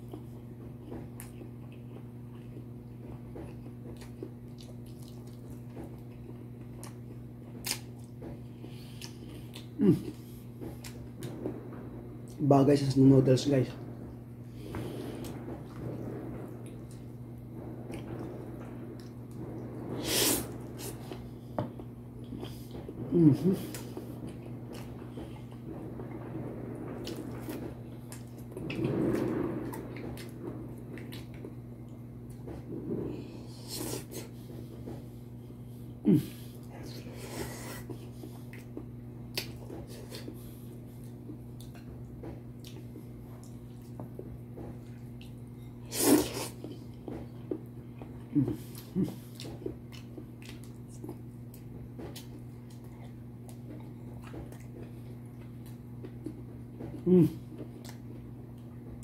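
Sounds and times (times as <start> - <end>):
wet eating sounds: 0.0 - 11.4, 27.0 - 31.6, 36.1 - 58.7
man chewing food: 0.0 - 12.4, 13.9 - 26.3, 26.9 - 59.0
steady low hum: 0.0 - 59.0
person slurping noodles: 20.0 - 21.0, 45.9 - 46.6
slurp: 45.9 - 46.7.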